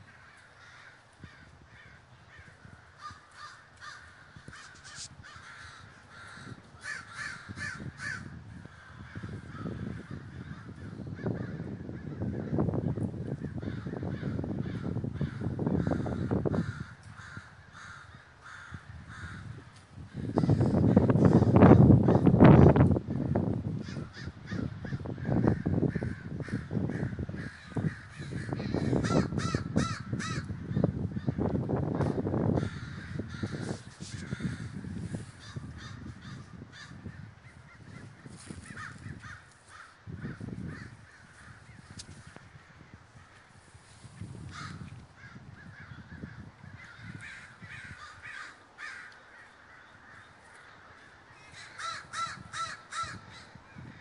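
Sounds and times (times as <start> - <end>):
crows cawing: 0.0 - 43.5, 44.4 - 54.0
microphone rumble: 4.2 - 18.0, 18.7 - 39.4.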